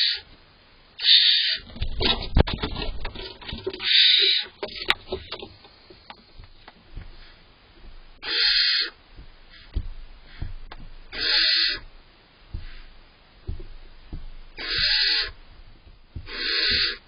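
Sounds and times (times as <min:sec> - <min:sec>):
owlets hissing calls: 0:00.0 - 0:00.3, 0:01.0 - 0:01.7, 0:03.8 - 0:04.6, 0:08.2 - 0:10.5, 0:11.1 - 0:13.0, 0:14.5 - 0:15.5, 0:16.1 - 0:17.0.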